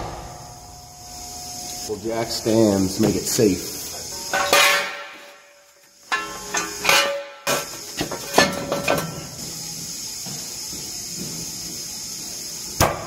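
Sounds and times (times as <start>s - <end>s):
steady high hiss: 0.0s - 13.0s
metallic clanks of jack stands: 6.1s - 9.2s.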